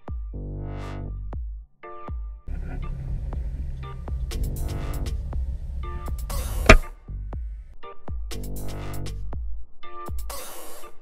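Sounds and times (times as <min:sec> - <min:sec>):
dubstep music with heavy bass: 0:02.5 - 0:07.0.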